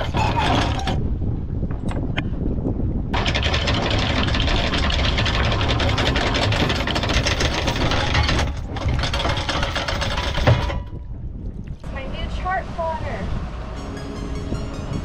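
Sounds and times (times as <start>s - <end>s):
anchor windlass chain clatter: 0.0s - 2.0s, 3.1s - 11.4s
boat engine humming: 3.2s - 15.0s.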